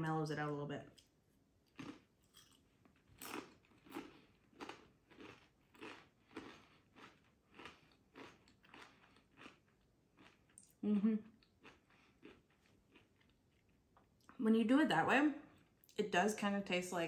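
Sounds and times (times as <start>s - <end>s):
chips crunching while chewing: 1.7s - 10.7s.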